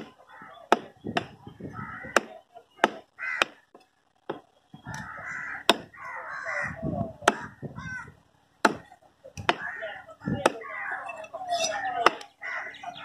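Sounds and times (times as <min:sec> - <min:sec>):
crows cawing: 0:00.1 - 0:00.8, 0:01.7 - 0:02.4, 0:03.1 - 0:03.7, 0:04.9 - 0:08.2, 0:09.5 - 0:13.0
cleaver chopping fish on wood: 0:00.7 - 0:01.4, 0:02.1 - 0:03.6, 0:05.6 - 0:05.9, 0:07.2 - 0:07.5, 0:08.6 - 0:09.7.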